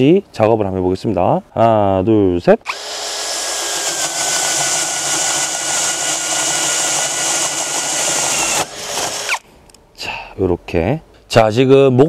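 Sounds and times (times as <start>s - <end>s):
drill bit cutting wood chips: 2.7s - 9.4s
drill motor whine: 2.7s - 9.4s.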